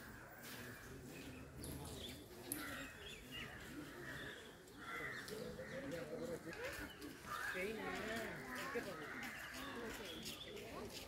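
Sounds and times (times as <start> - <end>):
birds chirping: 0.0 - 11.0
faint voices: 0.0 - 11.0.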